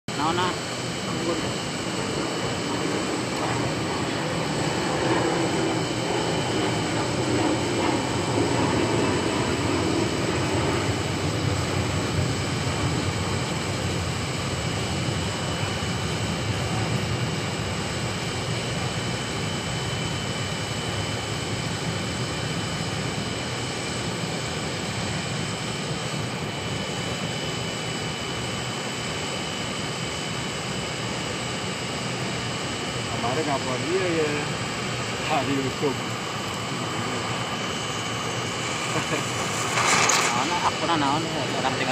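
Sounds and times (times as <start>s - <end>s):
cutting torch flame hissing: 0.2s - 21.3s, 32.2s - 41.9s.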